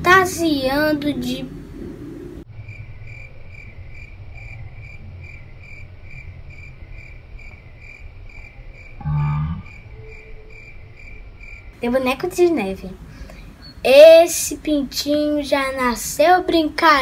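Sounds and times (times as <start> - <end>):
crickets chirping: 2.4 - 11.8.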